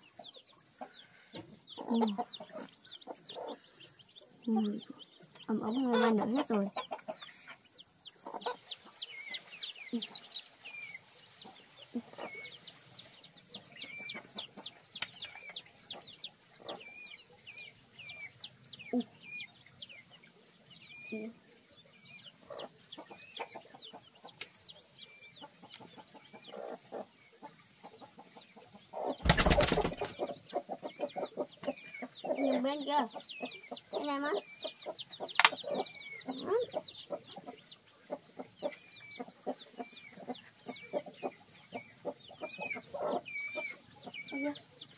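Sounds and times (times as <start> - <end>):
chicks peeping: 0.0 - 44.9
hen clucking: 0.0 - 44.9
wings flapping: 29.2 - 30.2.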